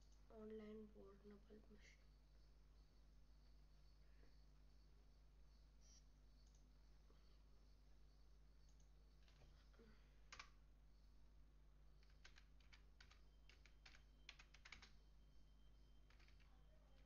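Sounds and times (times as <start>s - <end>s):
laptop keyboard typing: 8.6s - 9.6s, 10.2s - 10.6s, 11.9s - 17.0s.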